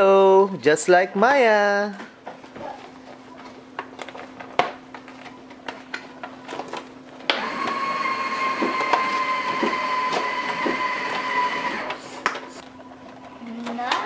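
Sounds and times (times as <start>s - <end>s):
small motor whine: 7.3s - 12.0s.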